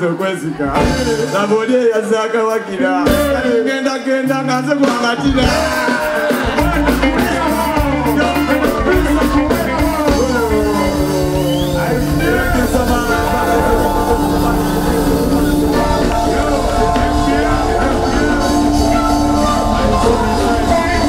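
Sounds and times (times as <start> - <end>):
live band playing: 0.0 - 21.0.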